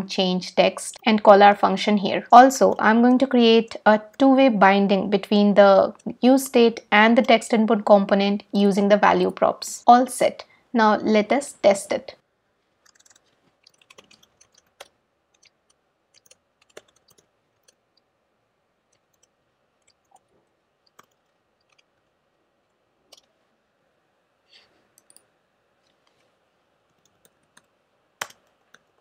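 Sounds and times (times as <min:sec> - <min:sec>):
keyboard and mouse clicks: 0:12.8 - 0:18.1, 0:18.9 - 0:22.1, 0:23.1 - 0:23.4, 0:24.9 - 0:26.2, 0:26.9 - 0:29.0.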